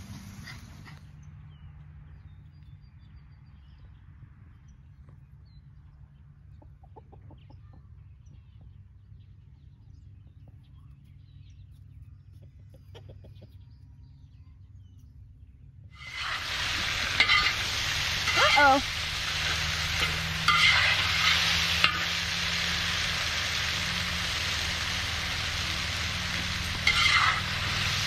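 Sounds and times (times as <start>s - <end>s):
chickens clucking: 6.5s - 7.9s, 12.3s - 13.8s, 16.0s - 28.0s
steady low hum: 13.7s - 28.0s.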